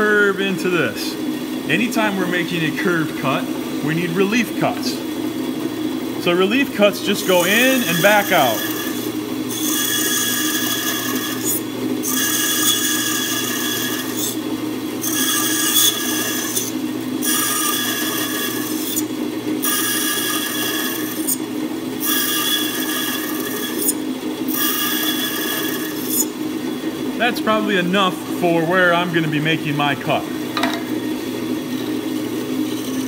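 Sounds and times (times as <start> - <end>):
bandsaw motor hum: 0.0 - 33.0
bandsaw blade cutting wood: 7.1 - 14.4, 15.0 - 21.4, 22.0 - 26.4, 32.6 - 33.0.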